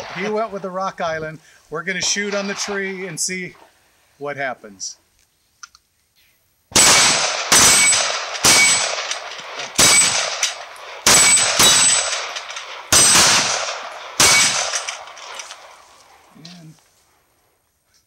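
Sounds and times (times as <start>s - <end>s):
pistol shots: 6.7s - 15.9s
steel plate ringing: 7.6s - 9.0s, 9.8s - 13.5s, 14.2s - 14.8s.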